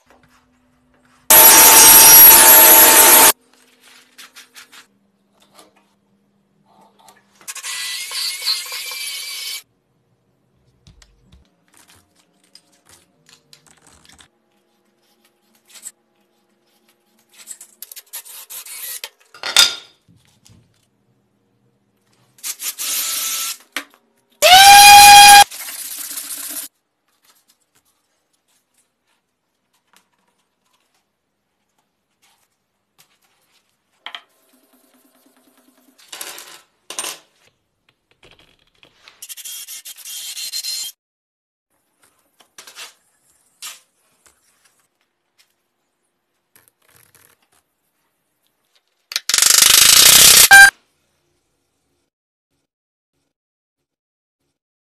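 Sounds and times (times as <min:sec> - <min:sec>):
power tool motor whine: 0:01.3 - 0:03.3
table saw cutting wood: 0:01.3 - 0:03.4
sharp click: 0:49.1 - 0:50.7.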